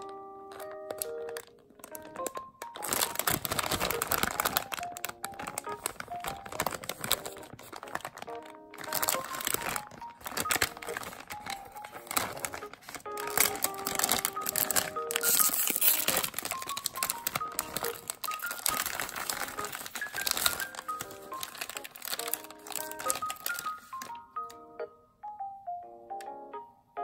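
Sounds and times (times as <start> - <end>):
candy wrappers crinkling: 0.0 - 24.6
background music: 0.0 - 27.0.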